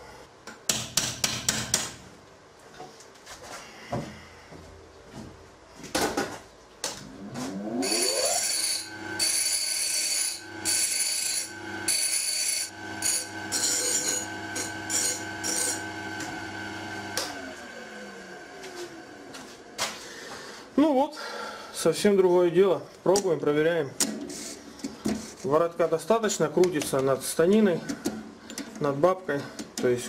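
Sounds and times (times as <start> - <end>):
electric motor running: 7.2 - 18.6
scraping and rasping on metal: 7.8 - 15.9, 24.2 - 25.5.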